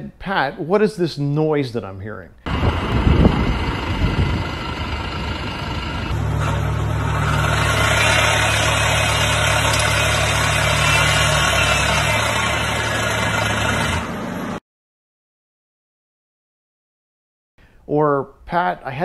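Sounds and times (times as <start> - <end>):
air conditioning compressor humming: 2.5 - 9.7.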